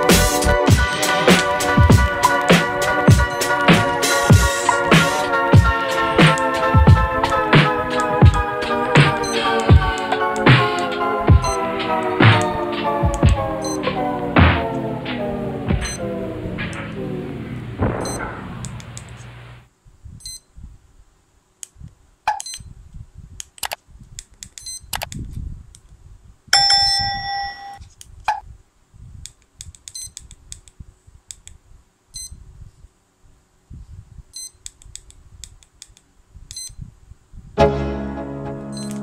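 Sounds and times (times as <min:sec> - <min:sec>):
background music: 0:00.0 - 0:18.8, 0:37.6 - 0:39.0
long multi-tone beep: 0:11.4 - 0:11.6, 0:13.6 - 0:13.9, 0:15.8 - 0:16.0, 0:38.7 - 0:39.0
short high electronic beeps: 0:13.6 - 0:13.9, 0:38.7 - 0:39.0
button clicks and handling: 0:38.8 - 0:39.0.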